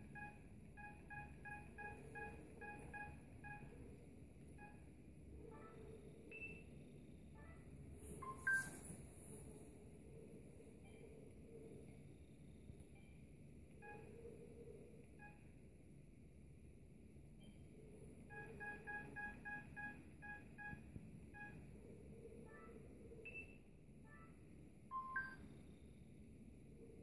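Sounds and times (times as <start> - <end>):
mobile phone beeps: 0.0 - 3.8, 8.2 - 8.8, 18.3 - 20.8, 24.9 - 25.4.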